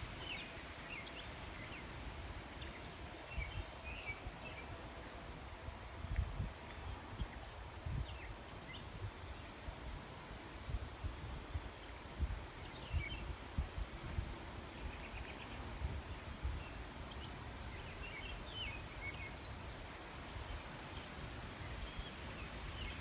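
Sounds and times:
wind buffeting microphone: 0:02.0 - 0:17.7
small birds chirping: 0:11.8 - 0:23.0.

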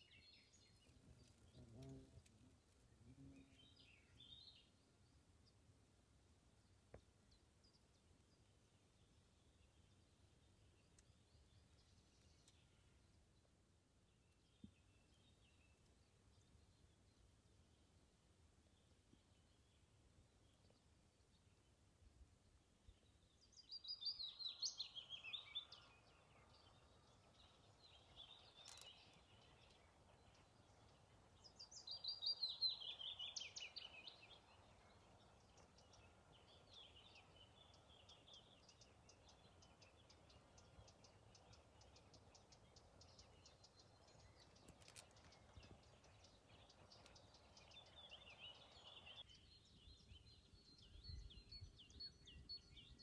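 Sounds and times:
faint steady background hiss: 0:00.0 - 0:53.0
bird chirps: 0:23.4 - 0:53.0
songbirds trilling: 0:23.7 - 0:53.0.

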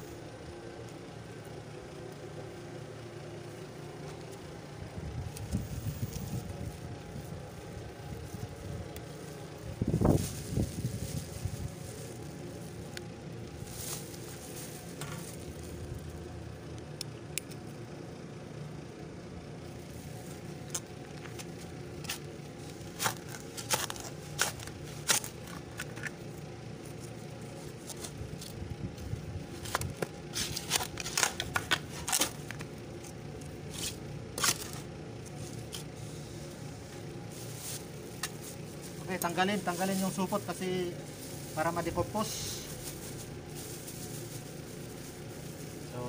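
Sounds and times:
steady low hum: 0:00.0 - 0:46.0
shovel scraping dry soil: 0:21.4 - 0:26.2, 0:29.5 - 0:36.5.

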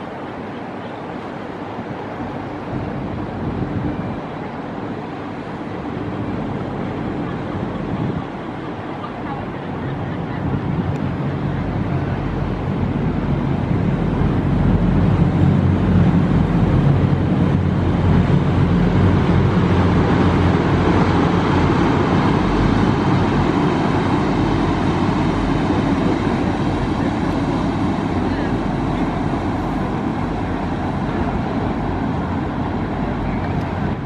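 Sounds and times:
large engine humming: 0:00.0 - 0:34.0
city traffic: 0:06.7 - 0:34.0.

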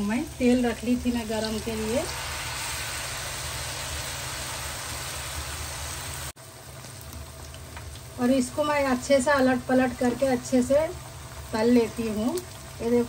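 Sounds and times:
deep-frying sizzle in hot oil: 0:00.0 - 0:13.0.

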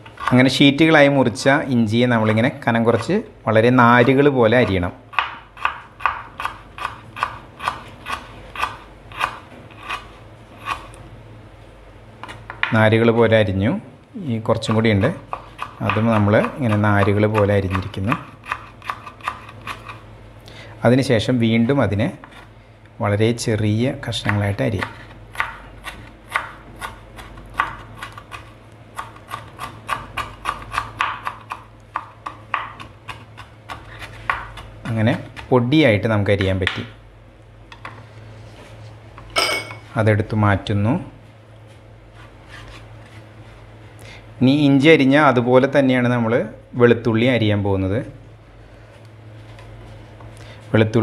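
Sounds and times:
knife chopping on wooden board: 0:04.0 - 0:10.0, 0:14.7 - 0:20.0, 0:24.2 - 0:35.5.

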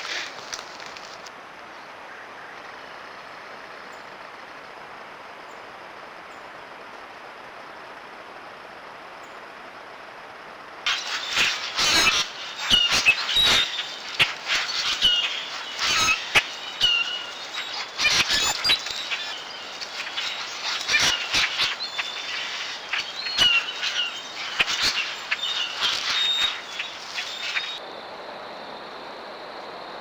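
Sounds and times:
wings fluttering: 0:00.0 - 0:01.4, 0:10.9 - 0:27.8
blackbirds calling: 0:10.9 - 0:27.8.

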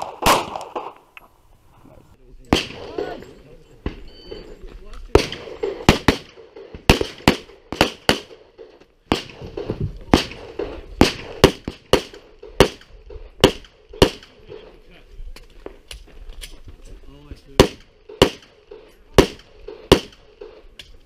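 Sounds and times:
pistol shots with ringing echo: 0:00.0 - 0:01.0, 0:02.5 - 0:14.8, 0:17.6 - 0:20.8.

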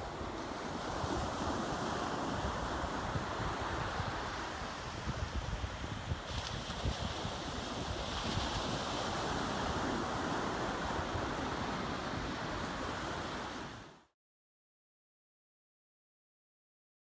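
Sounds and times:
wind buffeting microphone: 0:00.0 - 0:13.8
surf washing up beach: 0:00.0 - 0:14.1.

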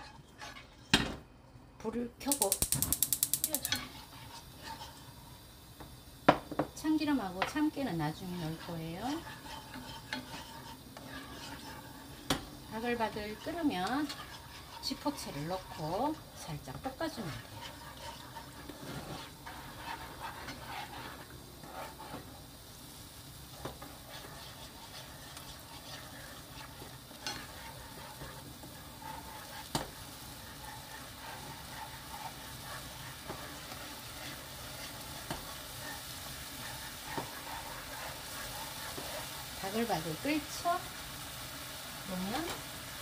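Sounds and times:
spatula scraping a wok: 0:00.0 - 0:01.1, 0:02.4 - 0:05.6, 0:06.3 - 0:43.0
sauce sizzling and bubbling: 0:00.0 - 0:43.0
sharp tap on pan: 0:02.3 - 0:03.8.

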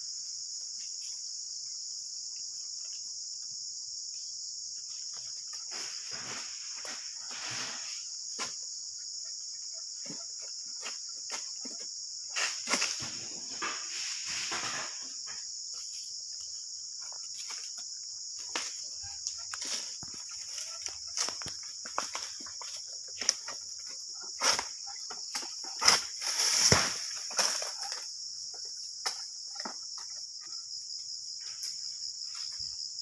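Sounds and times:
high-pitched insect chorus: 0:00.0 - 0:33.0
pole rustling and knocking in fronds: 0:18.4 - 0:28.2.

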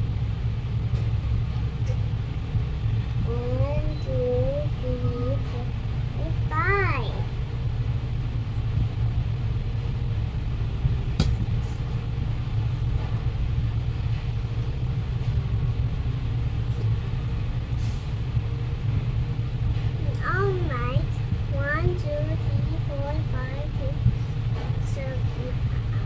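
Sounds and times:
low background rumble: 0:00.0 - 0:26.0
sharp click: 0:11.2 - 0:11.4.

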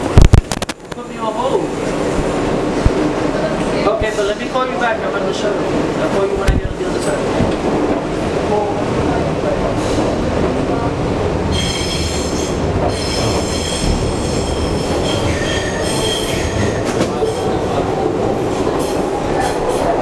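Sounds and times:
rumble of train wheels on track: 0:00.0 - 0:20.0
high-pitched wheel squeal: 0:11.5 - 0:17.4.

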